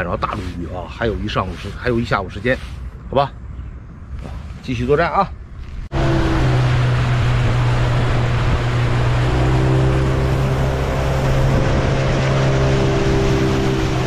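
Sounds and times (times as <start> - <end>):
wind noise: 0.0 - 14.0
outboard motor humming: 5.9 - 14.0
water rushing past hull: 5.9 - 14.0.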